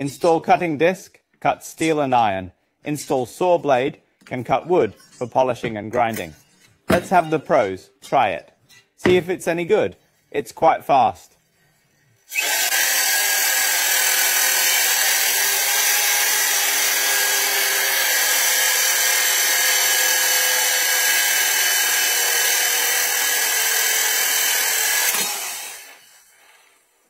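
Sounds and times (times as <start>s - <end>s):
drill cutting disc grinding steel: 11.5s - 26.6s.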